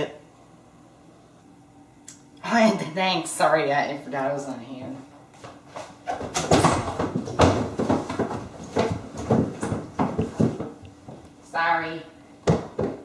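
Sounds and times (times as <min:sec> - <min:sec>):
irregular knocks and thuds: 0:05.8 - 0:11.3, 0:12.4 - 0:13.0.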